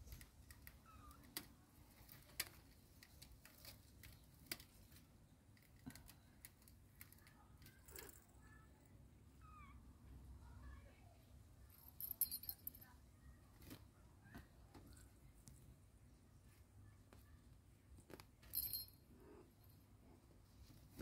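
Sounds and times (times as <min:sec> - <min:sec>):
kittens scratching and clicking: 0:00.0 - 0:08.6.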